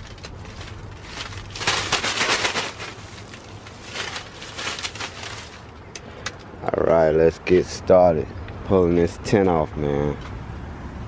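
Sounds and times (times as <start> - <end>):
plastic bag crinkling: 0.0 - 5.9.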